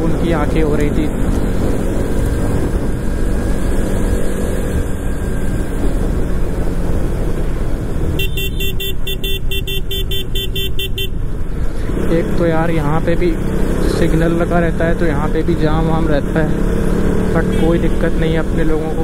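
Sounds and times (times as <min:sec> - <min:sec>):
wind rushing on microphone: 0:00.0 - 0:08.2
motorcycle engine: 0:00.0 - 0:19.0
horn beeping rapidly: 0:08.2 - 0:11.2.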